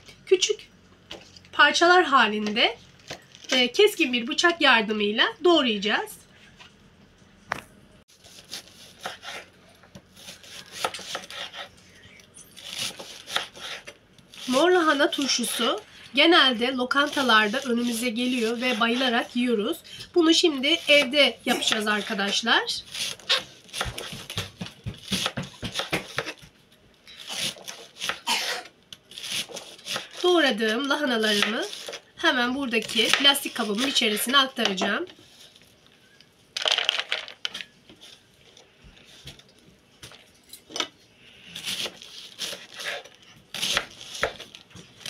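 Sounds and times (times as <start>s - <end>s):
knife slicing cabbage on board: 8.2s - 9.5s, 10.1s - 11.8s, 12.6s - 15.7s, 20.5s - 26.5s, 27.2s - 30.2s, 30.8s - 32.0s, 41.6s - 45.0s.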